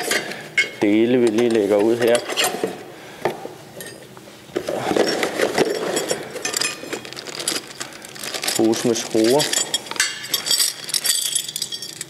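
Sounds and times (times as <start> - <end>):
rustling: 4.7 - 9.6
metal parts clinking: 4.9 - 12.0.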